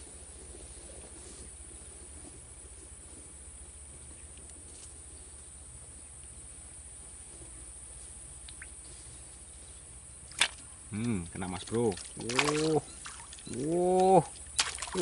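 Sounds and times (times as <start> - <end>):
faint ticks: 8.4 - 8.8.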